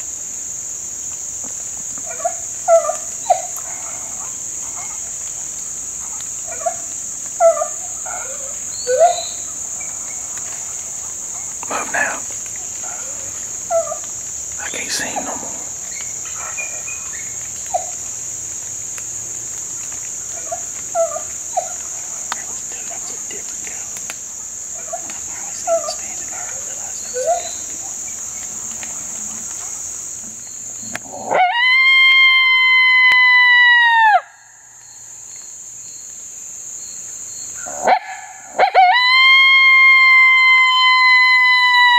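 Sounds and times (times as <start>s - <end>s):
short insect chirps: 0.0s - 31.3s, 34.3s - 38.6s
insects droning: 0.0s - 41.9s
coyote howler call: 2.0s - 5.0s, 6.4s - 9.5s, 12.7s - 14.1s, 25.6s - 27.7s, 31.1s - 34.5s, 37.6s - 41.9s.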